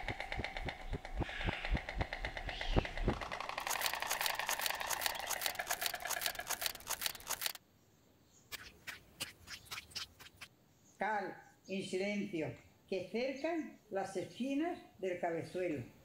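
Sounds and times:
low thumps: 0:00.0 - 0:03.7
storks clattering bills: 0:00.0 - 0:07.6.

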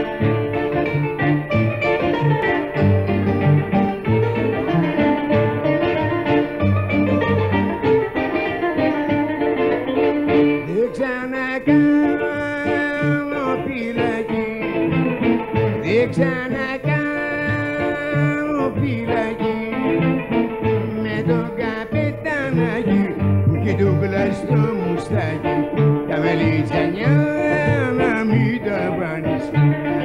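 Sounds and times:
bouzouki melody: 0:00.0 - 0:30.0
string band strumming: 0:00.0 - 0:30.0
man singing: 0:10.6 - 0:30.0.

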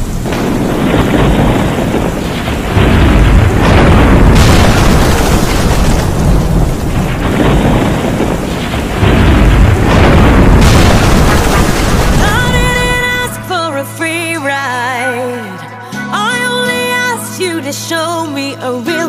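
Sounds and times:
rolling thunder: 0:00.0 - 0:13.3
thunderclap: 0:00.0 - 0:13.3
steady rain: 0:00.0 - 0:13.5.

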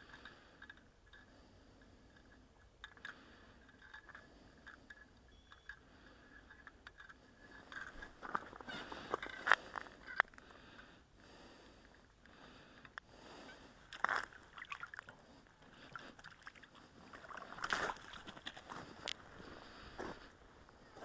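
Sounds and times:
fish flopping on slushy ice: 0:16.2 - 0:19.0.

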